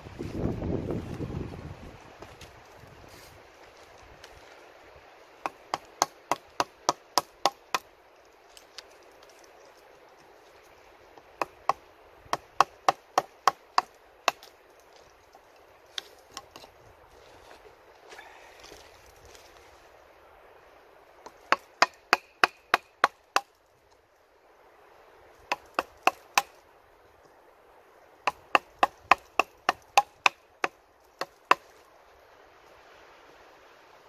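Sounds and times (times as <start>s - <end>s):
hatchet chopping wood: 5.4s - 7.9s, 11.3s - 14.5s, 21.2s - 23.6s, 25.5s - 26.6s, 28.2s - 31.7s.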